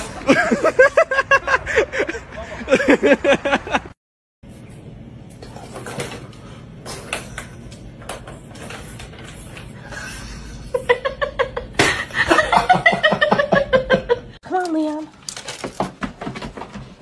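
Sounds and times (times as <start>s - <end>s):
person laughing: 0.0s - 4.0s.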